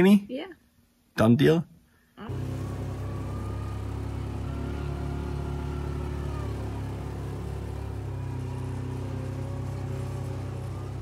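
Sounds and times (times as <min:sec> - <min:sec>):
vehicle engine running at low revs: 0:02.2 - 0:11.0.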